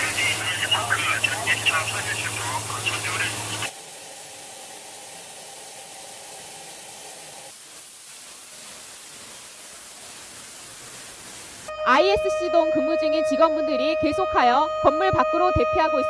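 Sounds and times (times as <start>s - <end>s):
water spraying from nozzle: 0.0s - 11.7s.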